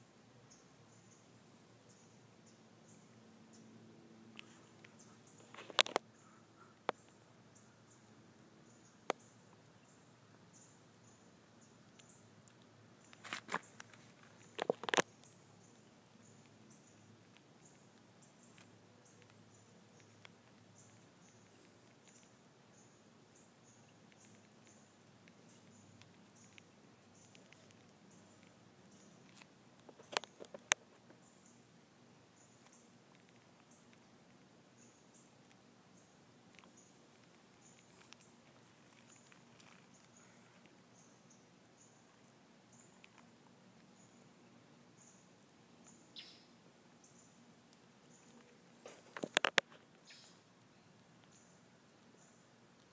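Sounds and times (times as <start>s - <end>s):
faint ticks: 4.4s - 31.6s, 32.4s - 44.2s, 45.0s - 52.9s
faint clicks: 32.6s - 35.6s, 36.5s - 41.4s, 42.1s - 44.0s, 47.7s - 52.9s
faint high chirps: 43.8s - 47.4s, 50.0s - 52.5s.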